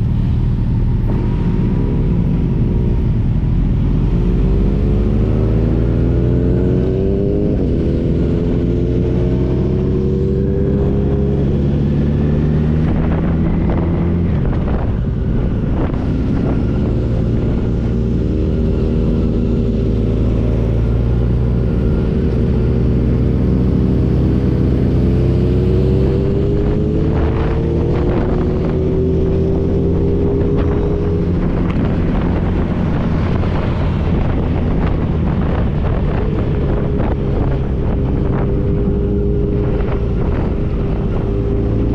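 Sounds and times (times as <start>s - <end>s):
wind buffeting microphone: 0.0s - 41.9s.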